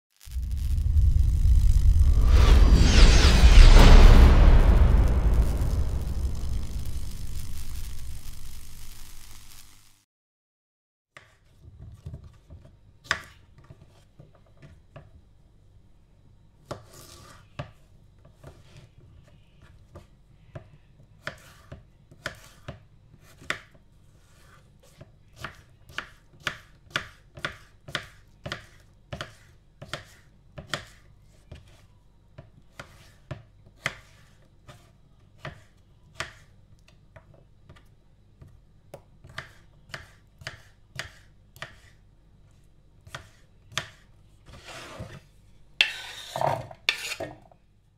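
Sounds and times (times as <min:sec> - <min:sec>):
knife chopping on wooden board: 0:25.4 - 0:31.6, 0:39.2 - 0:42.0, 0:43.1 - 0:44.0
pieces scraping against board: 0:44.5 - 0:45.2, 0:45.8 - 0:47.4.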